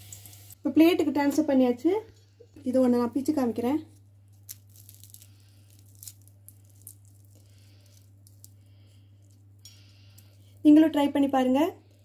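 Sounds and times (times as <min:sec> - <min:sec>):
low steady hum: 0:00.0 - 0:12.0
crackles of fried batter: 0:03.3 - 0:12.0.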